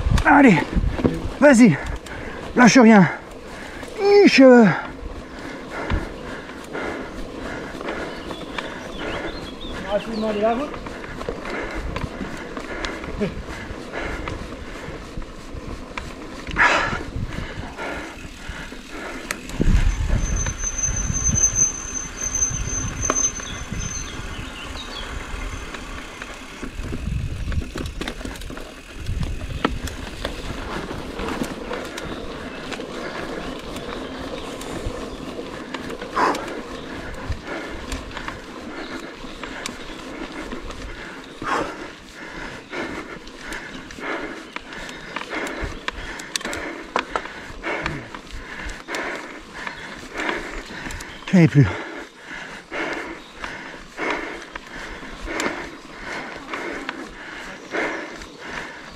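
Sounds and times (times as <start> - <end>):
wind rumbling on microphone: 0.0 - 4.1, 4.9 - 51.3
bike rattling and knocking: 0.0 - 58.9
brakes squealing: 17.7 - 48.2.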